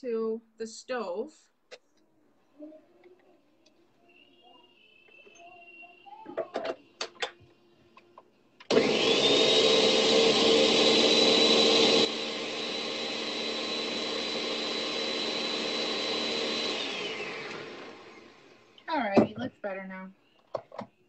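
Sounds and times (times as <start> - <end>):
blender motor whining: 8.6 - 18.9.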